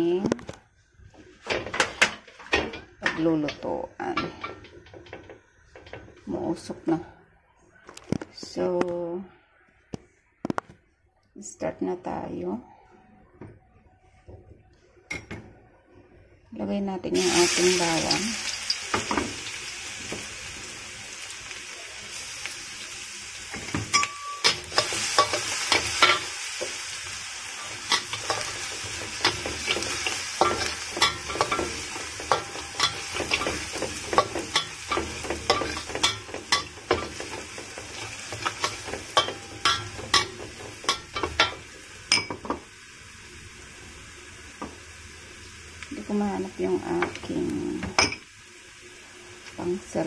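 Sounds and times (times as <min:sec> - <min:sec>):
garlic sizzling in oil: 0:17.1 - 0:50.0
spatula scraping a wok: 0:24.0 - 0:41.6.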